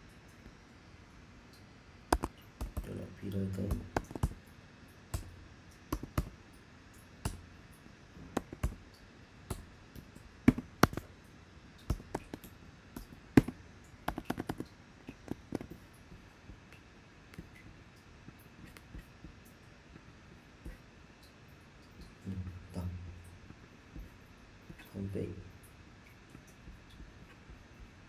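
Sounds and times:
typing on computer keyboard: 2.1 - 3.0, 3.6 - 4.4, 5.9 - 6.3, 8.4 - 8.8, 10.5 - 11.1, 11.8 - 12.5, 13.4 - 15.8.

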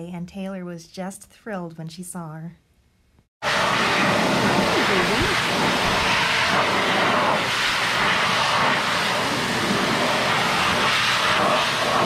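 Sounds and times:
pet dryer blowing air: 3.4 - 12.0.

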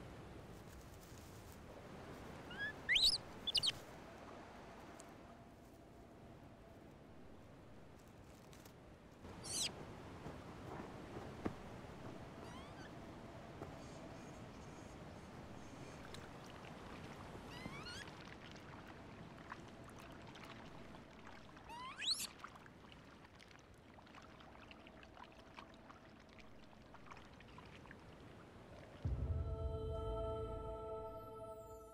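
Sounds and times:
monkey whistle-like calls: 2.5 - 3.8, 9.4 - 9.7, 12.4 - 12.9, 17.5 - 18.0, 21.7 - 22.3
music: 29.1 - 31.9.

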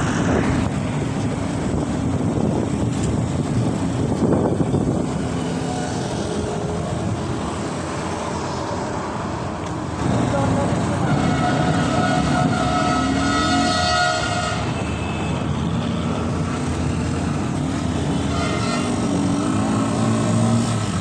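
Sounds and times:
motorcycles passing: 0.0 - 14.8, 15.4 - 21.0
cars passing: 0.0 - 21.0
vehicle passing loudly: 16.2 - 21.0.

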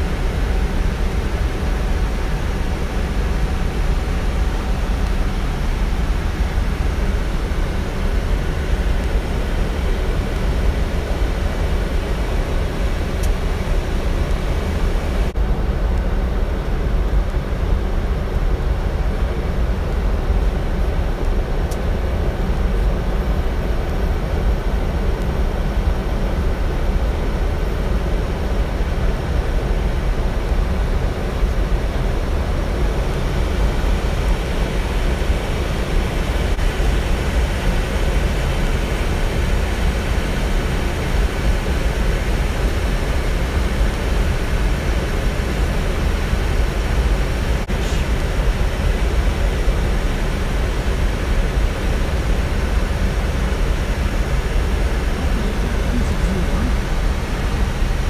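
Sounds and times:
low rumble of engine and airflow: 0.0 - 58.0.

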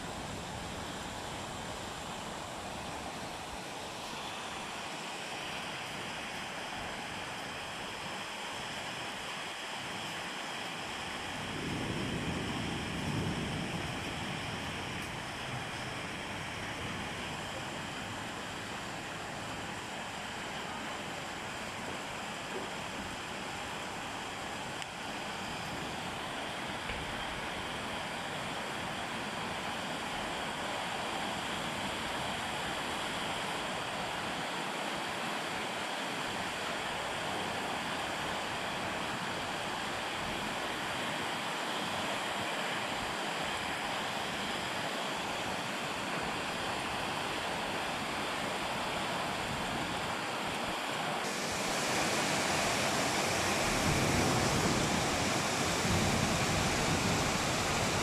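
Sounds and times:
heavy rain pouring: 0.0 - 58.0
wind gusts rumbling: 11.3 - 18.2, 51.3 - 58.0.

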